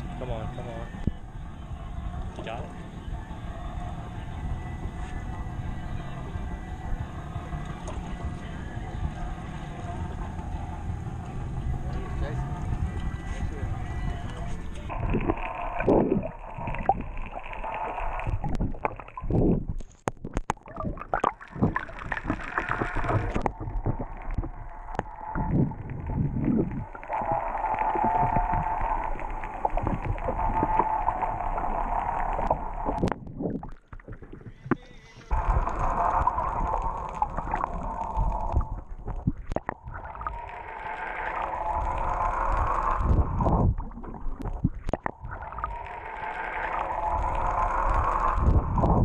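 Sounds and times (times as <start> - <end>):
steady hum: 0.0 - 19.8, 20.9 - 49.0
muffled underwater gurgling: 0.0 - 49.0.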